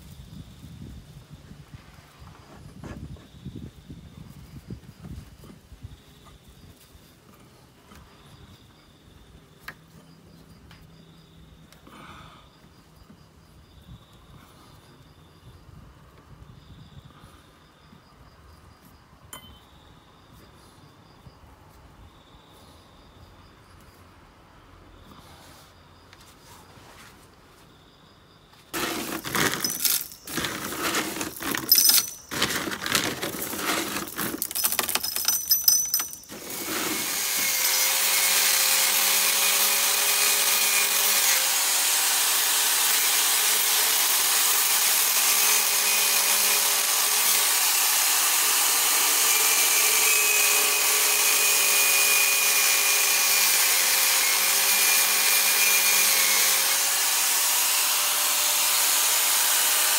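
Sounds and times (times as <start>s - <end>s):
insect chirping: 0.0s - 33.0s
crushed stone clattering: 28.8s - 37.0s.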